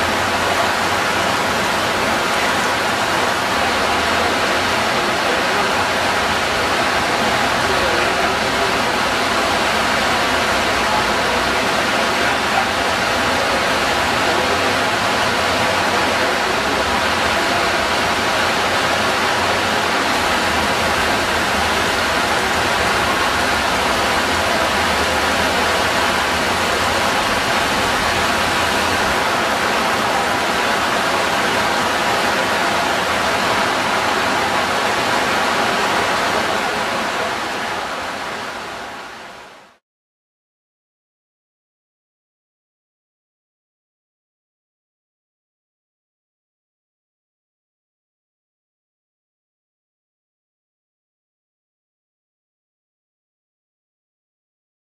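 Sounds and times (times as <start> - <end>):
heavy rain on foliage: 0.0 - 39.8.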